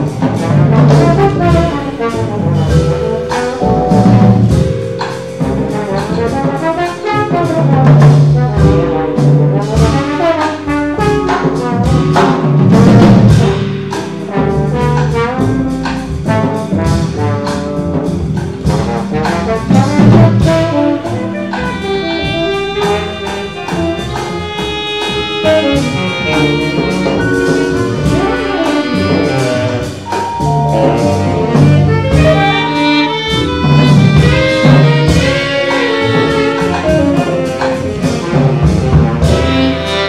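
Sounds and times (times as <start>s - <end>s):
double bass: 0.0s - 40.0s
drum kit: 0.0s - 40.0s
trombone: 0.0s - 40.0s
trumpet: 0.0s - 40.0s
saxophone: 20.3s - 40.0s
vibraphone: 26.7s - 33.6s.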